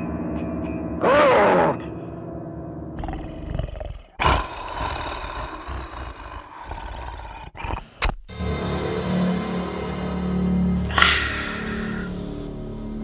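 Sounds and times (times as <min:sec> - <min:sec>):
monster roaring: 0:01.0 - 0:01.8, 0:03.0 - 0:08.1.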